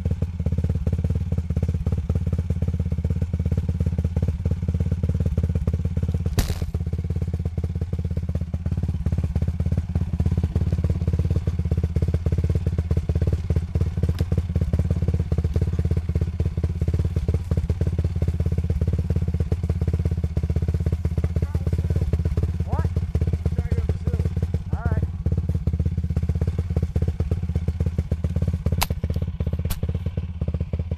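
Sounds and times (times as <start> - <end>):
atv engine idling: 0.0 - 30.9
sharp click: 28.8 - 29.9.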